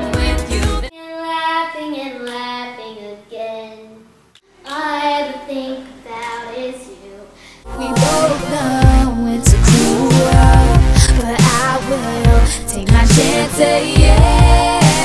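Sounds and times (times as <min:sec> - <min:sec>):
pop backing track with singing: 0:00.0 - 0:00.9, 0:07.7 - 0:15.0
girl singing unaccompanied: 0:00.0 - 0:15.0.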